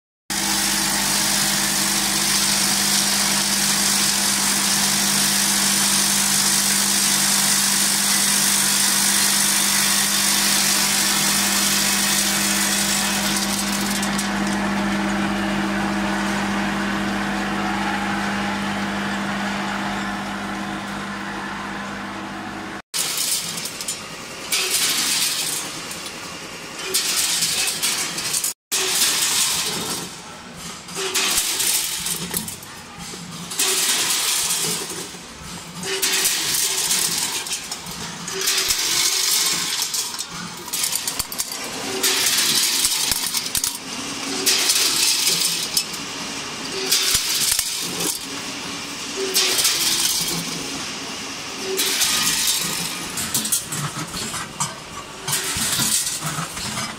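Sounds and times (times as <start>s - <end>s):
steady machine hum: 0.3s - 22.8s
clips clattering against metal hoppers: 23.0s - 26.2s, 26.8s - 48.5s, 49.2s - 50.8s, 51.6s - 56.9s.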